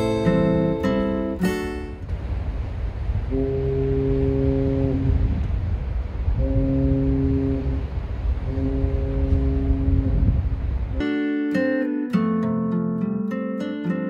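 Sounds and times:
constant low rumble: 0:00.0 - 0:11.2
ferry horn blasts: 0:03.3 - 0:05.4, 0:06.3 - 0:10.3.

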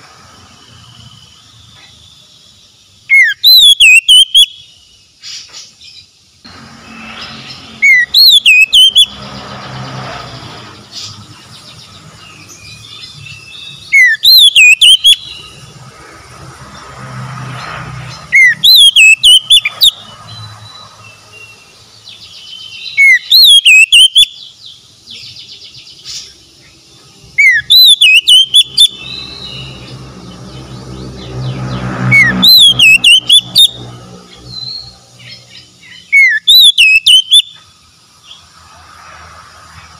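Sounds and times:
bird singing whistled phrases: 0:03.1 - 0:04.8, 0:07.8 - 0:09.1, 0:12.6 - 0:15.5, 0:18.3 - 0:20.0, 0:22.4 - 0:24.5, 0:27.4 - 0:29.8, 0:32.1 - 0:33.8, 0:35.9 - 0:37.6.

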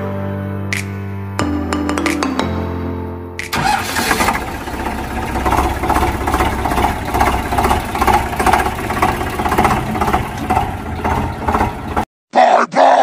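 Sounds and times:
tractor engine idling: 0:03.5 - 0:12.1.

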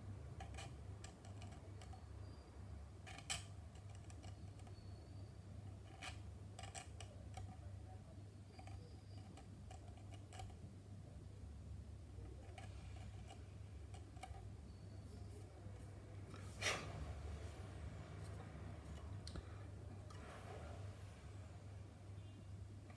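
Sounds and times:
steady low hum: 0:00.0 - 0:22.9
faint tool clicks and scrapes: 0:00.3 - 0:02.4, 0:03.0 - 0:07.7, 0:08.4 - 0:10.6, 0:12.2 - 0:21.2.

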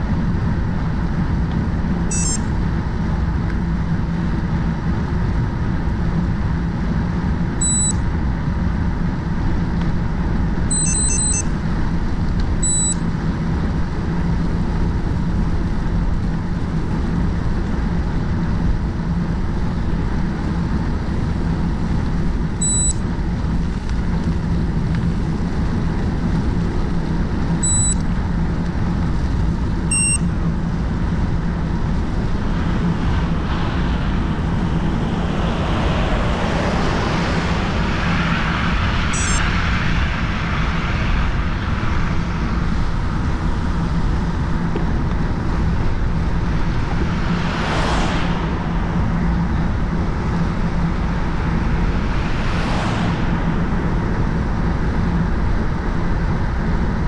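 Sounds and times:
low steady hum: 0:00.0 - 0:57.0
passing vehicle: 0:00.0 - 0:57.0
short high beeps: 0:02.1 - 0:02.5, 0:07.6 - 0:08.0, 0:10.7 - 0:11.5, 0:12.6 - 0:13.0, 0:22.6 - 0:23.0, 0:27.6 - 0:28.0, 0:29.9 - 0:30.3, 0:39.2 - 0:39.4
wind on microphone: 0:28.2 - 0:57.0.

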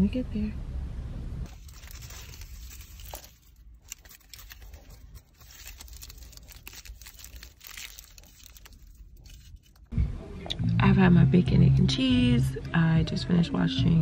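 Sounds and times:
aluminium foil crinkling: 0:01.5 - 0:09.9.

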